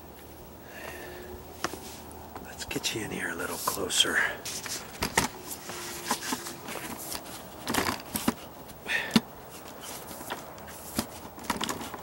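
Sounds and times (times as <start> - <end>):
camera handling knocks and scuffs: 4.5 - 12.0.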